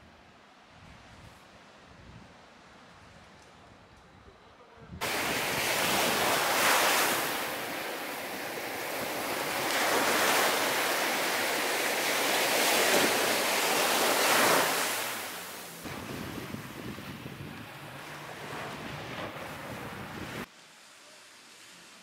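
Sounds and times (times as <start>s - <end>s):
small waves breaking on beach: 5.0s - 22.0s.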